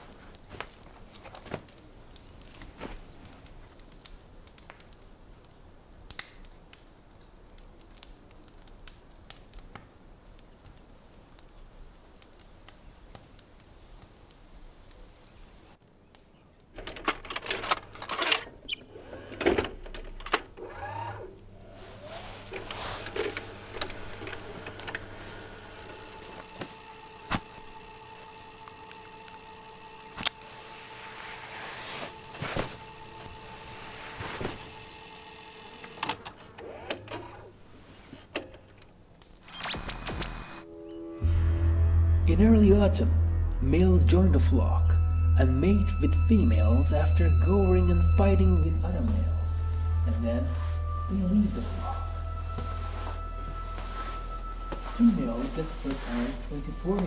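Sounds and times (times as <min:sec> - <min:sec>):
low steady hum: 0:19.8 - 0:36.6, 0:40.4 - 0:57.0
fur and cloth rustling: 0:21.6 - 0:27.8, 0:30.2 - 0:34.8, 0:49.6 - 0:57.0.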